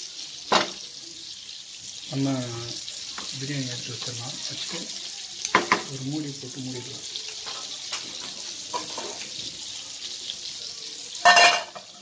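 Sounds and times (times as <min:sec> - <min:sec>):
faint sizzle: 0:00.0 - 0:12.0
metal lid clanking: 0:11.2 - 0:11.9.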